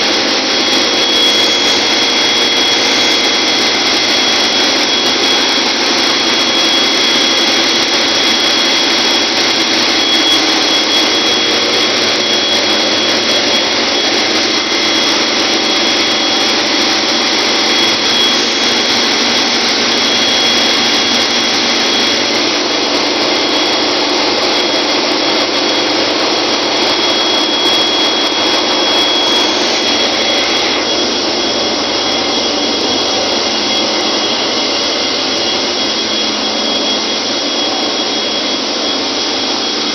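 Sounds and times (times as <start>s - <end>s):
engine-room machinery din: 0.0s - 39.9s
high-pitched whine: 0.0s - 39.9s.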